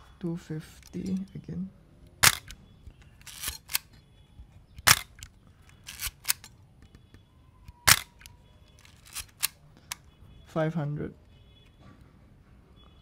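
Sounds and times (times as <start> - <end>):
camera shutter clack: 2.2 - 2.6, 3.2 - 3.9, 4.8 - 6.5, 7.8 - 9.6
film advance lever clicking: 4.8 - 6.5, 7.8 - 9.6.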